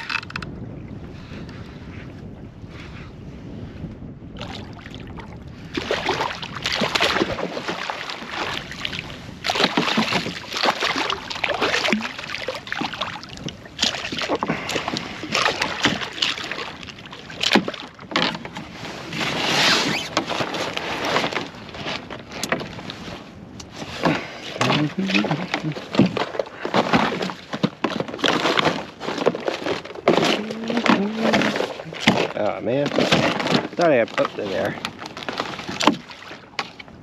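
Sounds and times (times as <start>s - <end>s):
fish splashing in water: 5.8s - 18.0s.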